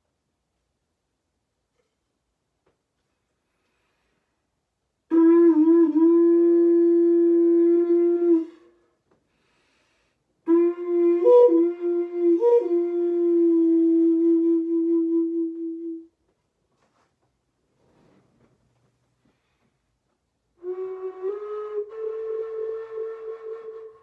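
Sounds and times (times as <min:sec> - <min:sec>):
wooden flute low notes: 0:05.1 - 0:09.2, 0:10.4 - 0:16.2, 0:20.5 - 0:24.0.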